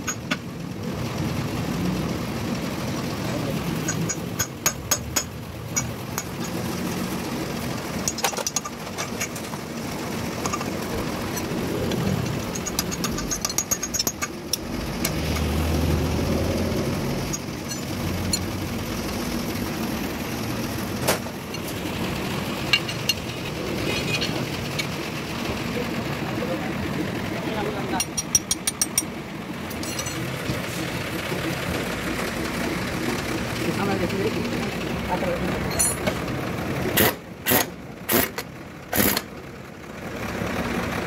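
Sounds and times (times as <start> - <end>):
engine hum: 0.0 - 41.0
metallic clinks: 12.2 - 14.3, 17.3 - 18.5, 29.7 - 30.3, 35.7 - 36.1.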